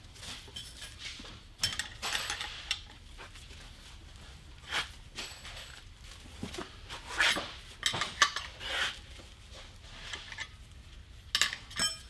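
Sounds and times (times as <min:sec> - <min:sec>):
wrench clinking on metal nut: 0:11.4 - 0:12.0.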